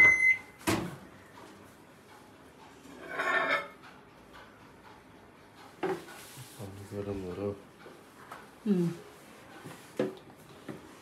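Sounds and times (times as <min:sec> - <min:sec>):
microwave beep: 0:00.0 - 0:00.6.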